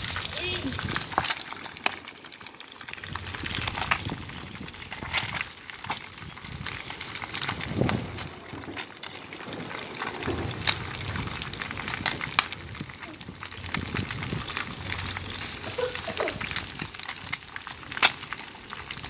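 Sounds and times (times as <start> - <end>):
hot oil sizzling: 0.0 - 19.0
oil crackling and popping: 0.0 - 19.0.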